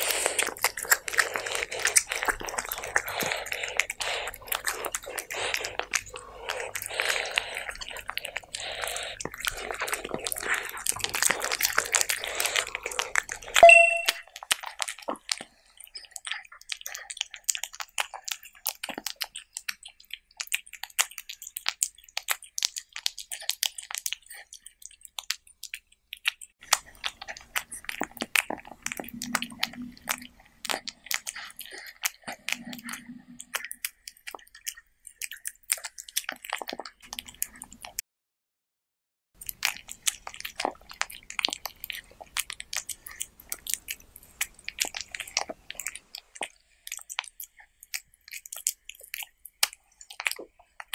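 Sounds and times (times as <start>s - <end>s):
cat licking and chewing: 0.0s - 38.0s, 39.4s - 50.9s
bell-like ding: 13.6s - 14.2s.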